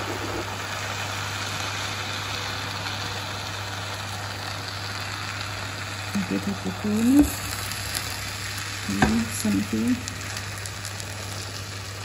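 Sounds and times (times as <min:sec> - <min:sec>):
baklava sizzling: 0:00.0 - 0:12.0.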